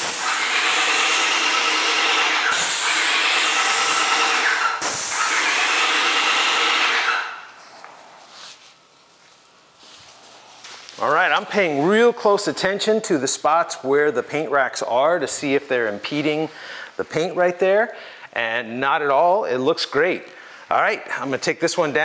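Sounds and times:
pump running: 0:00.0 - 0:07.4
paint sprayer hissing: 0:00.0 - 0:07.6.

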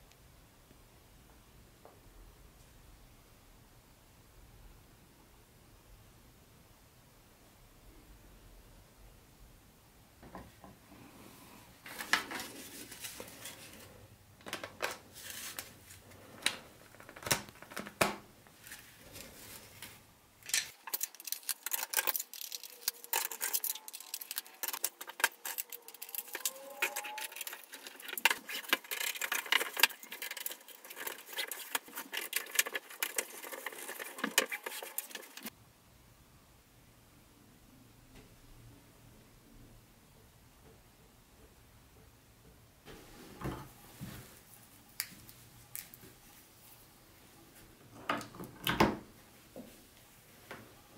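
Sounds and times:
plastic track clicking and clattering: 0:20.5 - 0:35.5.

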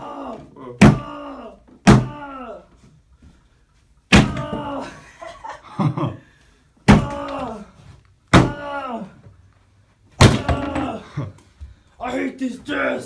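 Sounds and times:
foot kicking wooden desk bangs: 0:04.1 - 0:04.6, 0:10.2 - 0:11.0.

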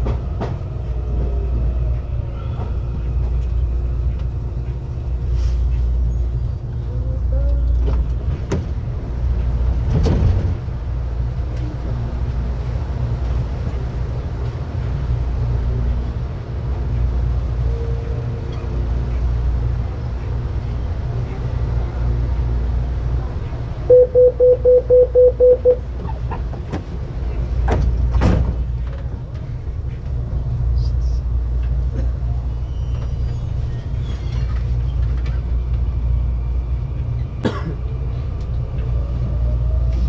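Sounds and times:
train humming at platform: 0:00.0 - 0:40.0
door-closing warning beeps: 0:23.9 - 0:25.8.

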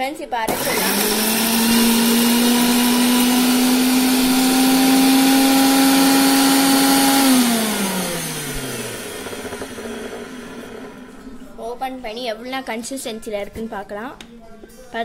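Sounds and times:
mixer grinder whining: 0:00.5 - 0:11.6.

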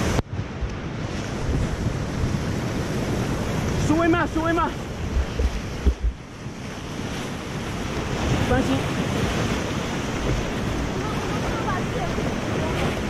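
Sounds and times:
wind buffeting microphone: 0:00.0 - 0:13.0
whitewater rapids rushing: 0:03.2 - 0:06.1, 0:07.3 - 0:13.0
heavy thumps: 0:05.1 - 0:06.2.

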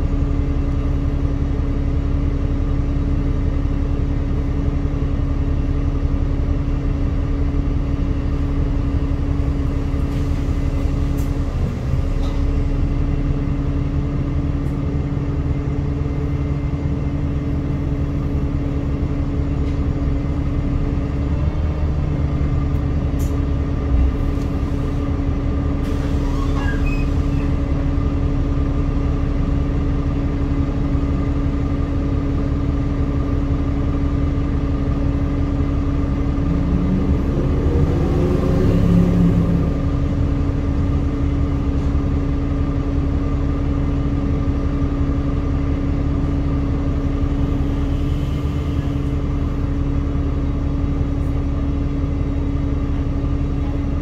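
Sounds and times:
bus diesel engine idling: 0:00.0 - 0:54.0.

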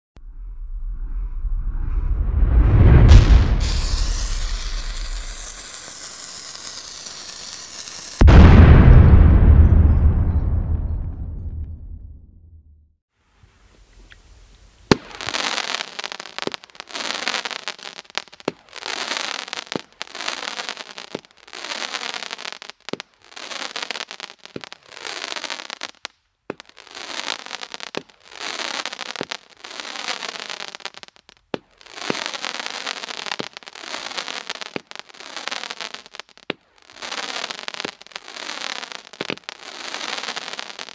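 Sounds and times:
firework launch thumps: 0:02.6 - 0:12.0
firework crackling: 0:02.8 - 0:08.9, 0:14.0 - 0:40.9.

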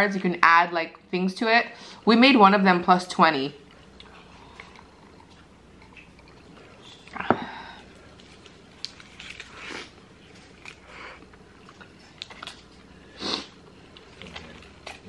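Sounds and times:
chewing mouth clicks and smacks: 0:03.6 - 0:07.2, 0:08.2 - 0:09.6
foil wrapper crinkling: 0:08.1 - 0:10.9.

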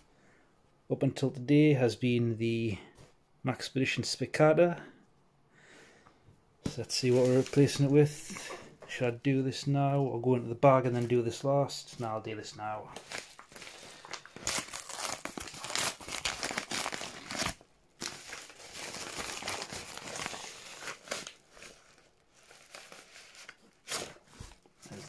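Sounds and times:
paper mailer crinkling: 0:06.9 - 0:08.0, 0:12.9 - 0:24.2.

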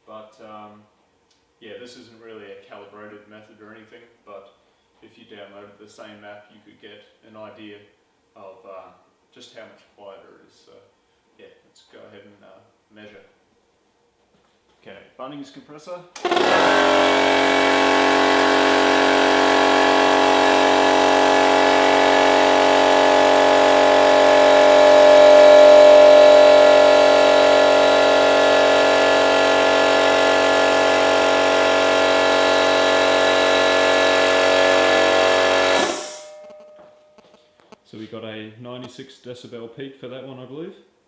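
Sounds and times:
air compressor running: 0:16.2 - 0:37.0.

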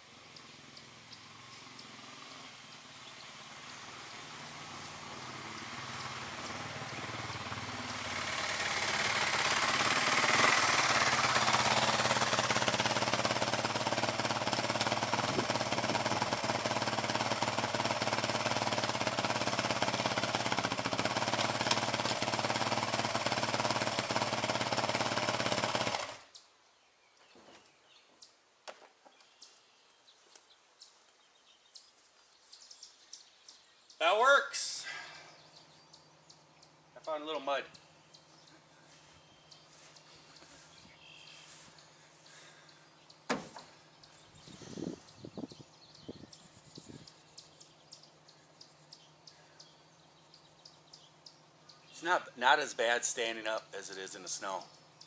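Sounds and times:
dirt bike engine running: 0:00.1 - 0:26.4, 0:34.9 - 0:52.0.

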